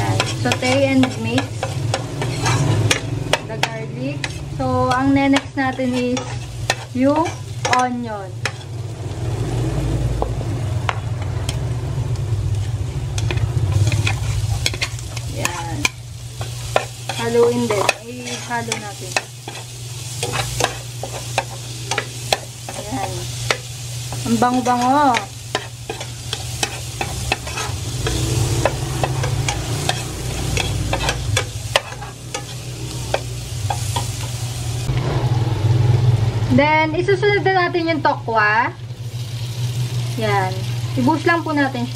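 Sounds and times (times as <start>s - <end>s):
spatula scraping a pot: 0.0s - 3.0s, 5.7s - 7.6s, 25.5s - 32.6s
garlic sizzling in a pot: 0.0s - 35.1s, 35.7s - 41.9s
spoon clicks and scrapes: 0.2s - 3.1s.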